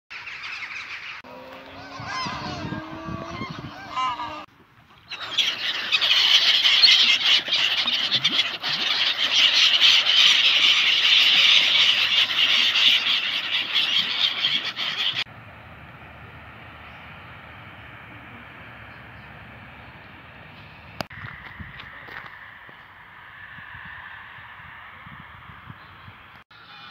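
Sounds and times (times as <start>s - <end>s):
gulls calling: 0.1s - 15.3s
low honking calls: 1.2s - 4.5s.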